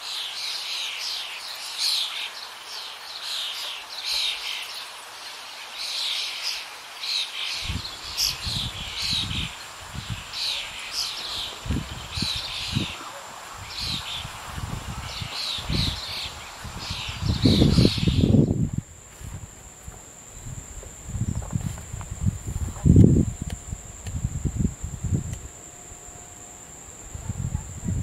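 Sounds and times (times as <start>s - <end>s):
small birds chirping: 0.0s - 18.8s.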